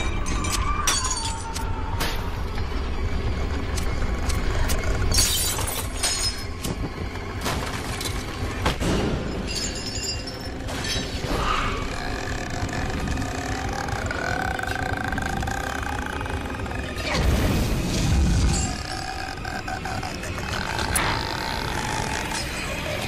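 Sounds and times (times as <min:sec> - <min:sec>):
low drone: 0:09.9 - 0:23.0.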